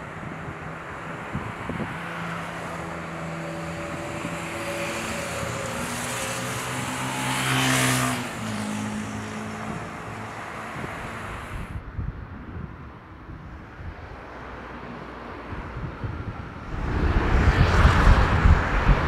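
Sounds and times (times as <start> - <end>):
motor vehicle passing: 16.6 - 19.0.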